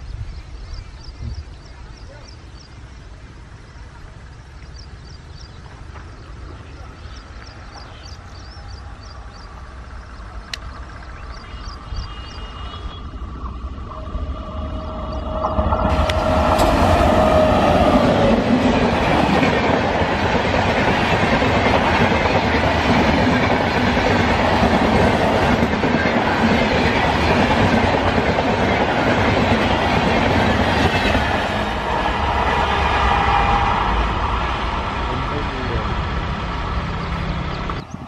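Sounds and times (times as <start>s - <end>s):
train wheels on rails: 4.8s - 38.0s
locomotive horn: 11.5s - 18.1s
clickety-clack over rail joints: 15.3s - 31.7s.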